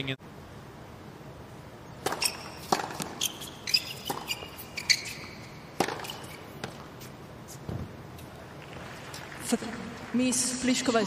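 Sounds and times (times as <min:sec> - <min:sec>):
tennis ball bouncing: 0:02.0 - 0:07.1
racket striking tennis ball: 0:02.0 - 0:07.9
sneakers squeaking on court: 0:02.0 - 0:07.9.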